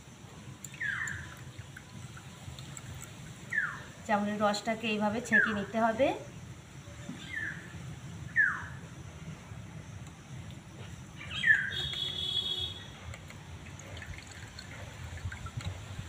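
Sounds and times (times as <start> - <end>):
juice dripping into glass: 0.4 - 3.9, 13.1 - 16.0
bird chirping and trilling: 0.7 - 1.6, 3.4 - 4.0, 5.3 - 5.7, 7.2 - 7.7, 8.3 - 8.8, 11.2 - 12.9.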